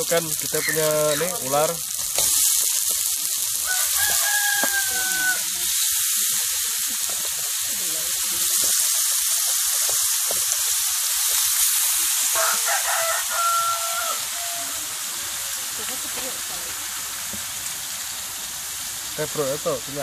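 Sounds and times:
meat sizzling in a wok: 0.0 - 20.0
rooster crowing: 3.6 - 5.6, 12.3 - 15.2.

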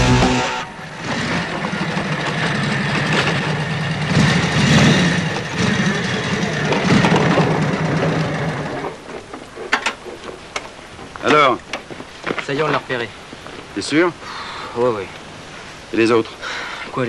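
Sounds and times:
rock music: 0.0 - 0.8
motorcycle engine running: 0.0 - 9.0.

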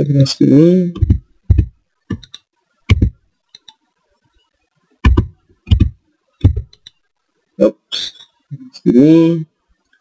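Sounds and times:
mouse and keyboard clicks: 1.0 - 3.8, 5.0 - 7.0.

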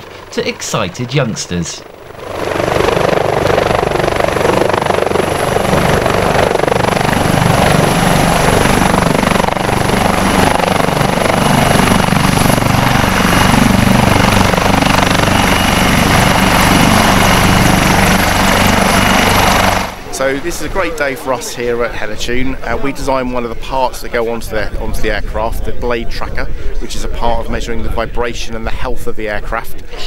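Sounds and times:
helicopter rotor beat: 0.0 - 23.6
high turbine whine: 0.0 - 23.6.

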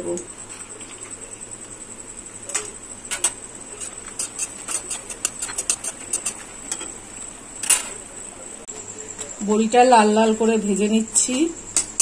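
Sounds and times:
metal spatula scraping pan: 3.7 - 7.0.

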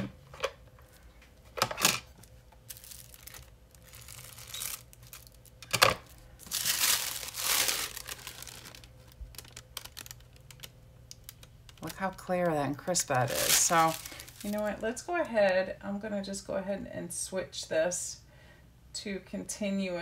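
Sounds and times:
tissue paper crinkling: 2.2 - 14.8.

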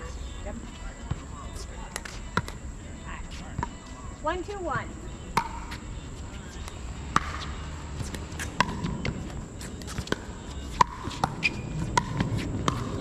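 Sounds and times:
paddles hitting plastic ball: 8.0 - 9.2.

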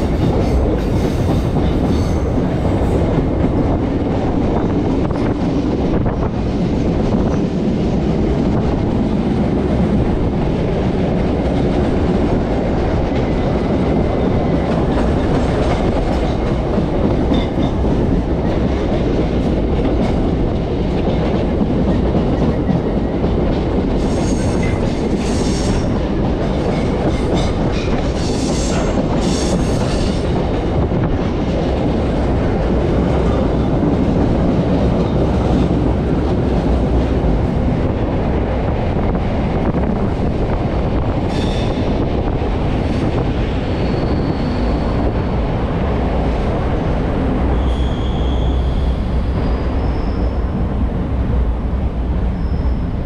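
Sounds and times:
electric train rumbling on track: 0.0 - 53.0
faint high squeaks: 47.5 - 50.4, 52.4 - 53.0.

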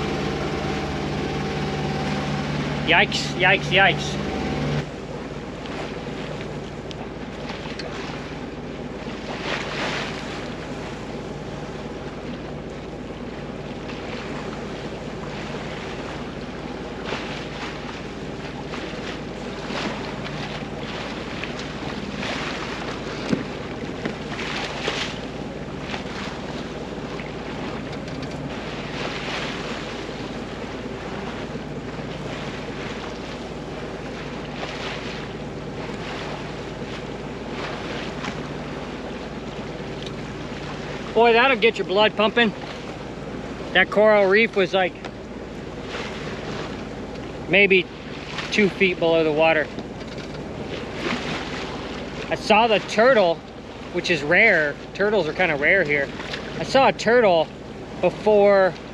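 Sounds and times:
loud water splashes: 0.0 - 5.0, 13.8 - 27.9, 28.5 - 45.0, 50.6 - 58.9
steady low hum: 0.0 - 58.9
water rushing along a hull: 0.0 - 58.9.

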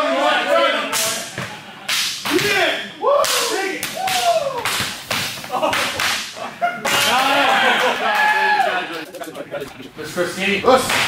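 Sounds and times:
men whooping and yelling: 2.6 - 4.8, 6.6 - 9.1.

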